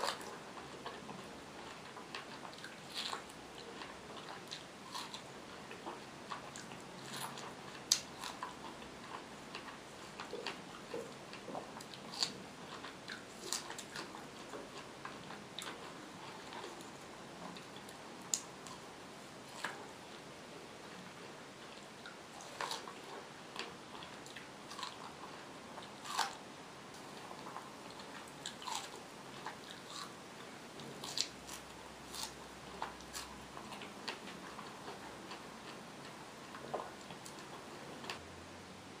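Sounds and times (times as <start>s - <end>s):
person biting and chewing food: 0.0s - 20.0s, 22.0s - 35.9s.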